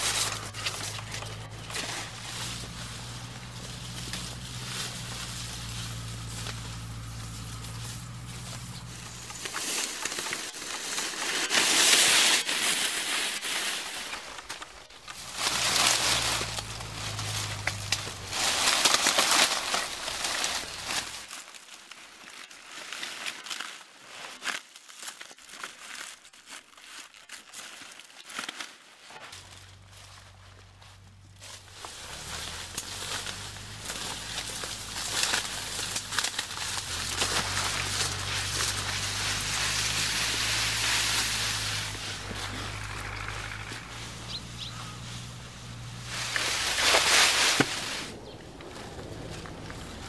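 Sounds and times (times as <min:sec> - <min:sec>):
dry reeds rustling and crackling: 0:00.0 - 0:50.0.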